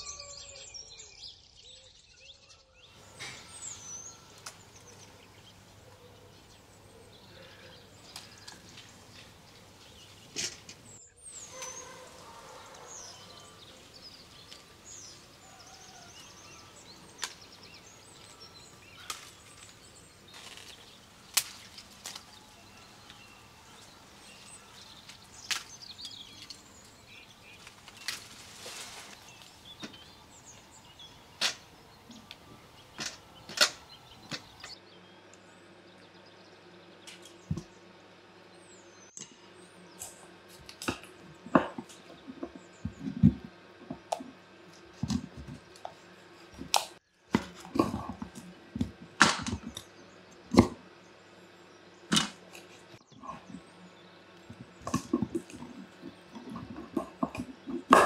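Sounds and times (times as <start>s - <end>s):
rustling branches: 2.9s - 34.8s, 52.0s - 58.0s
fruit snapping off tree: 19.0s - 22.4s, 25.0s - 26.2s
knives chopping on wooden boards: 46.6s - 49.8s.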